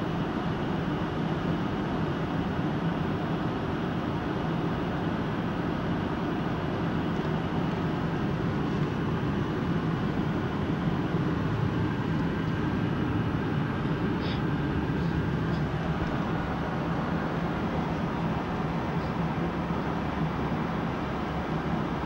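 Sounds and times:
airliner cabin noise: 2.8s - 22.0s.

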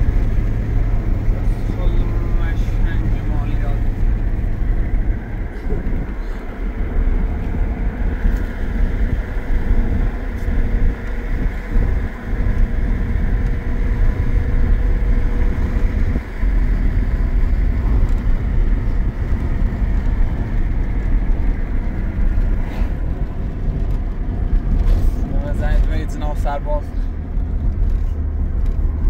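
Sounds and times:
road vehicle rumbling: 0.0s - 29.0s.

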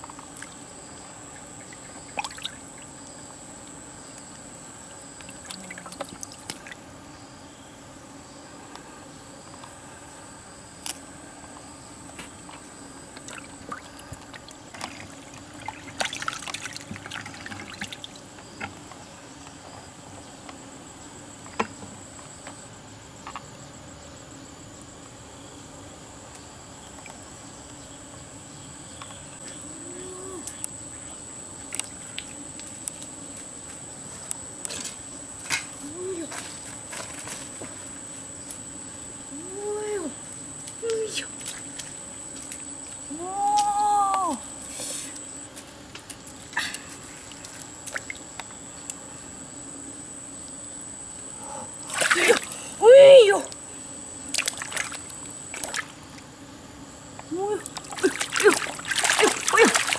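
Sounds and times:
water trickling and splashing: 1.5s - 2.9s, 5.2s - 6.8s, 13.2s - 18.3s, 51.9s - 52.6s, 54.4s - 55.9s, 57.5s - 59.9s
fish splashing at surface: 51.9s - 52.6s, 57.8s - 59.9s.

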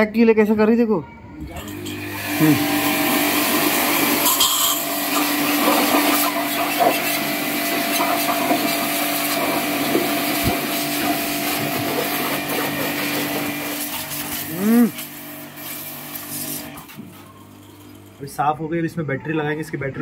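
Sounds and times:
pressure washer motor hum: 1.6s - 18.8s
water spray hissing: 2.3s - 16.8s.

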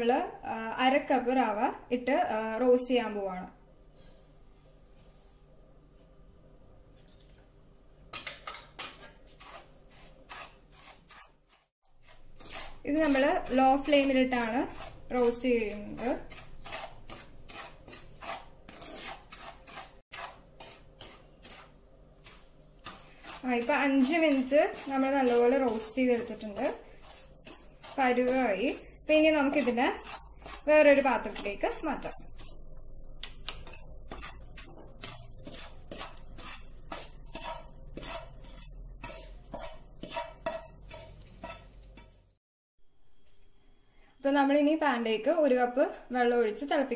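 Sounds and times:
spatula scraping a pan: 8.2s - 42.4s.

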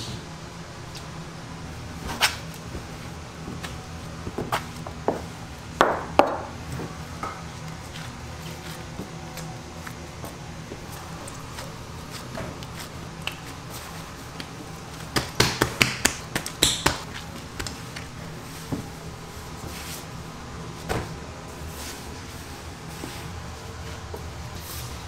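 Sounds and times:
steady low hum: 0.0s - 25.0s
hands slapping dough: 14.3s - 18.1s.

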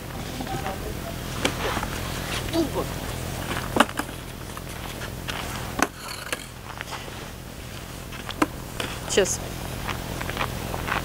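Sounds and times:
steady low rumble: 0.0s - 11.0s
footsteps on packed snow: 6.6s - 11.0s.

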